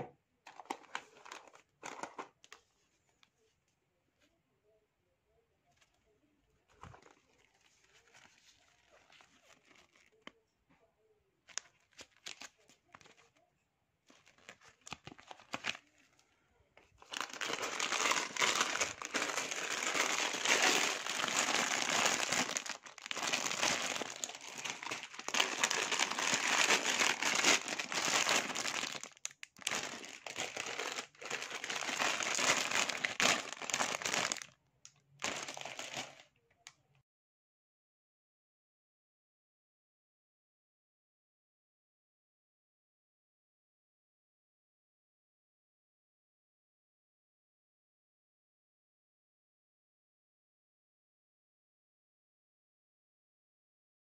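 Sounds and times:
plastic bags crinkling: 0.5s - 2.6s, 6.8s - 10.3s, 11.5s - 13.3s, 14.1s - 15.8s, 17.0s - 34.6s, 35.2s - 36.2s.

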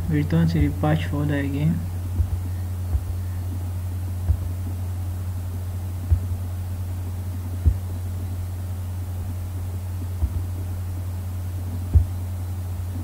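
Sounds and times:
low electrical hum: 0.0s - 13.0s
soft thumps: 2.1s - 4.8s, 6.0s - 6.5s, 7.3s - 8.1s, 9.2s - 11.0s, 11.7s - 12.2s.

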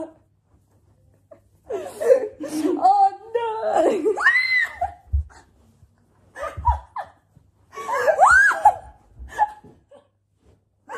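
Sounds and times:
woman squealing: 8.0s - 8.9s.

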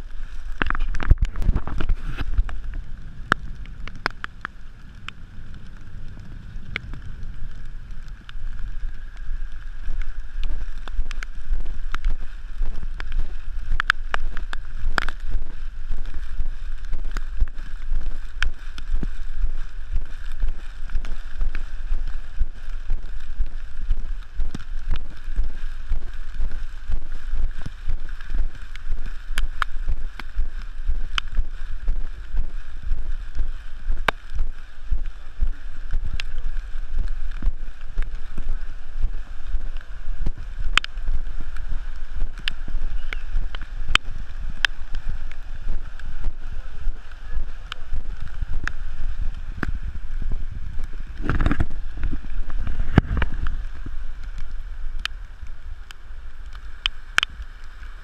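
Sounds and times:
wind buffeting microphone: 0.0s - 55.7s
sharp taps and clicks: 13.0s - 15.2s, 40.2s - 40.9s.

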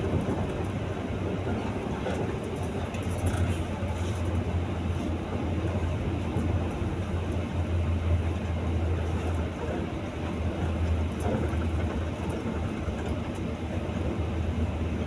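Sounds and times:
bus engine drone: 0.0s - 15.0s
road rumble: 0.0s - 15.0s.

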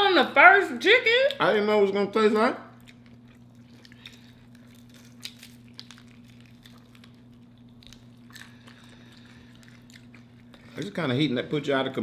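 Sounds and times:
steady low hum: 0.0s - 12.0s
chewing crispy chicken: 2.7s - 11.6s.

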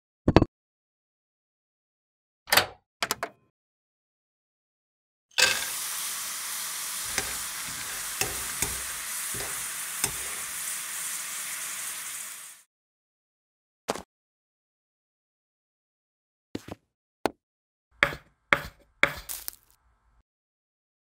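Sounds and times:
frying sizzle from a pan: 5.4s - 12.7s.

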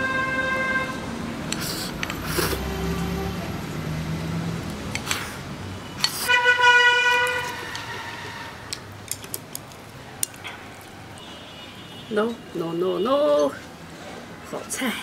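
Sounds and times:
vehicle horn: 0.0s - 1.1s, 5.9s - 8.7s, 11.2s - 12.2s.

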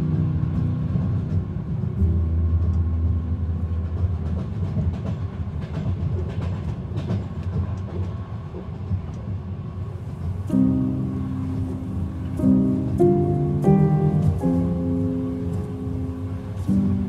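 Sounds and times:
train rumbling on rails: 0.0s - 17.0s
train wheels clicking: 0.0s - 17.0s
music track: 10.3s - 17.0s.

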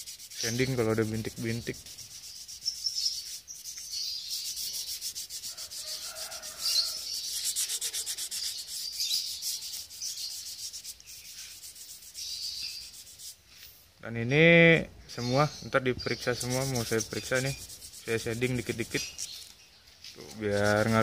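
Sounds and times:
sandpaper rubbing on metal tube: 0.0s - 13.8s, 16.0s - 19.5s, 20.2s - 21.0s.

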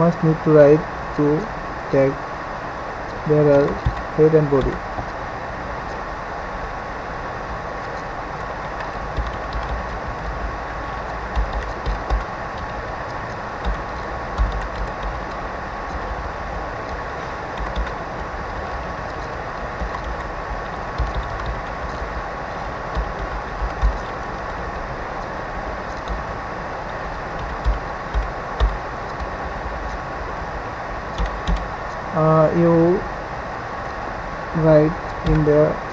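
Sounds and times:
background hiss: 0.0s - 35.9s
keyboard keys tapping: 3.3s - 5.2s, 7.8s - 16.2s, 16.8s - 30.0s, 31.1s - 32.0s, 35.1s - 35.6s.

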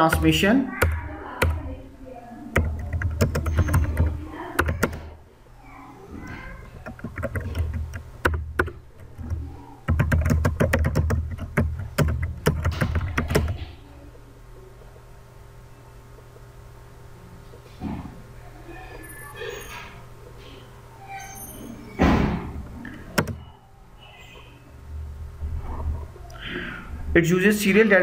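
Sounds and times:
typing on computer keyboard: 0.0s - 1.7s, 2.5s - 5.1s, 6.7s - 13.7s, 23.2s - 23.4s.

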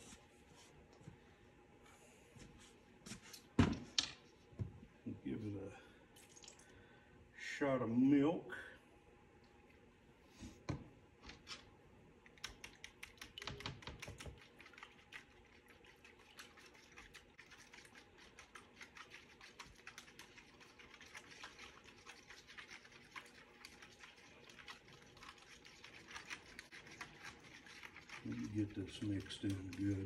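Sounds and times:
whisk clicking against bowl: 12.3s - 14.9s, 26.0s - 30.0s.

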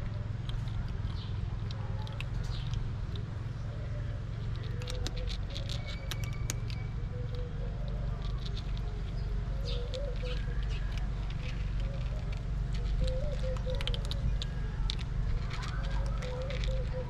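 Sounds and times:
kittens crunching dry food: 0.0s - 17.0s
low background rumble: 0.0s - 17.0s.

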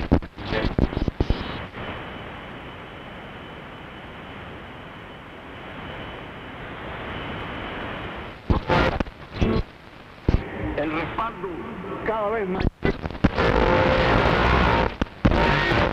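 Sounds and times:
broken radio station audio: 0.0s - 2.0s, 8.3s - 15.9s
radio static hiss: 0.0s - 15.9s.

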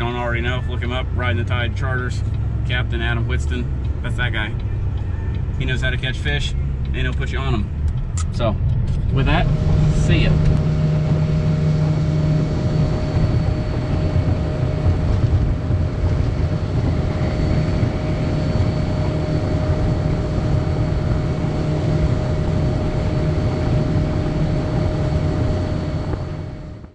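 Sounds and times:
outboard engine drone: 0.0s - 26.9s
wind and spray rushing: 9.0s - 26.5s.

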